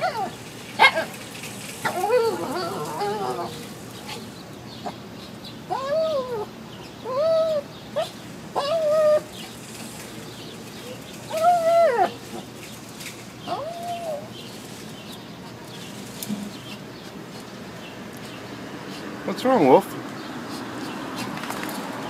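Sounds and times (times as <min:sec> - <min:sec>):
dog whining: 0:00.0 - 0:01.2, 0:01.8 - 0:05.0, 0:05.6 - 0:09.5, 0:10.8 - 0:12.5, 0:13.4 - 0:14.4.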